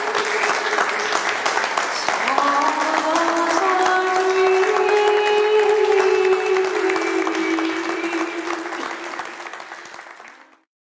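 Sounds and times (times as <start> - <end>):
audience applause: 0.0 - 10.7.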